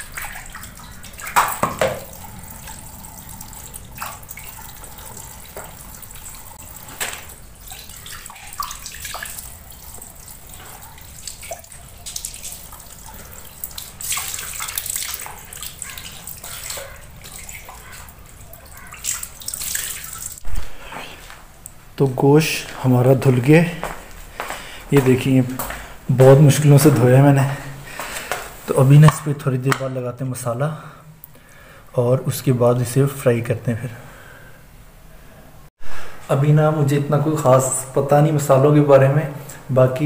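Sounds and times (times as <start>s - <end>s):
splashing while washing chicken: 0.0s - 20.4s
water running from a tap: 0.0s - 20.4s.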